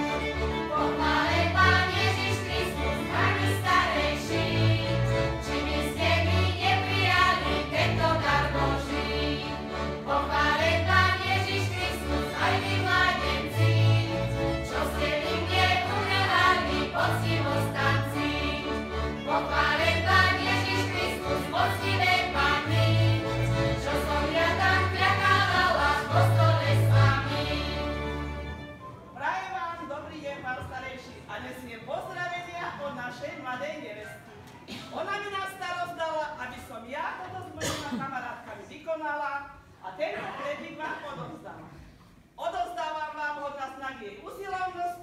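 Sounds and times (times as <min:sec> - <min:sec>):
fiddle: 0:00.0 - 0:10.2, 0:10.8 - 0:25.2
double bass: 0:00.0 - 0:28.5
group singing folk song: 0:00.0 - 0:28.5.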